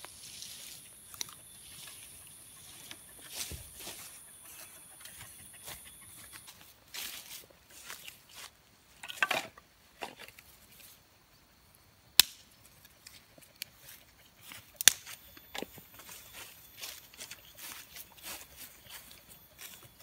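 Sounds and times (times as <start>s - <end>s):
sticks and leaves rustling: 0.0s - 11.0s, 12.2s - 20.0s
dry wood cracking: 14.7s - 15.8s.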